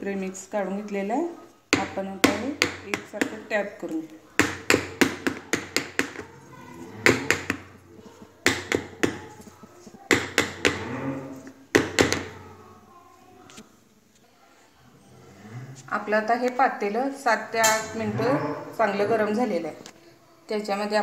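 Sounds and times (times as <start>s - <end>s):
cake tin tapped with sharp knocks: 1.7s - 6.3s, 7.0s - 10.8s, 11.7s - 12.4s.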